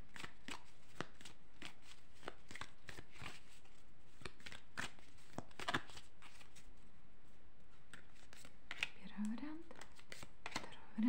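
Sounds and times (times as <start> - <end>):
cards being shuffled: 0.1 - 6.7, 7.8 - 10.7.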